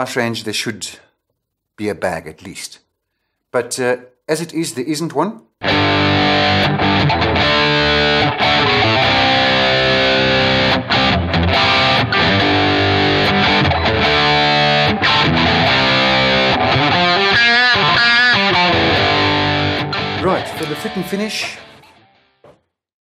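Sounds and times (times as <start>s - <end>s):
electric guitar chords and riffs: 5.6s - 22.4s.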